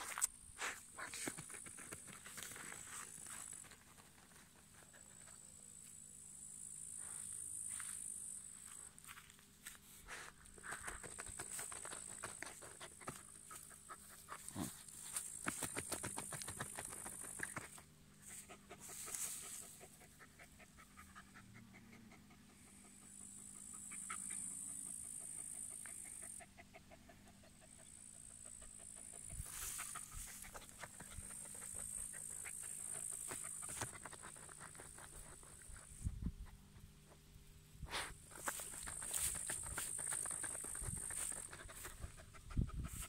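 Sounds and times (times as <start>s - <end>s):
dog scratching earth: 10.6s - 17.8s, 29.0s - 35.9s, 37.9s - 42.1s.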